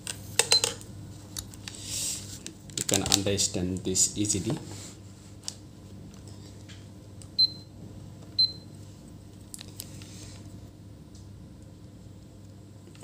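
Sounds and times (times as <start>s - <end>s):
faint steady hum: 0.0s - 13.0s
multimeter beeps: 7.4s - 7.7s, 8.4s - 8.6s.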